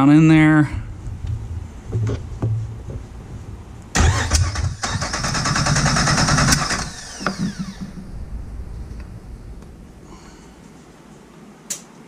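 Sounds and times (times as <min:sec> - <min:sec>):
engine winding down whine: 0:03.9 - 0:10.1
starter motor cranking engine: 0:04.0 - 0:08.0.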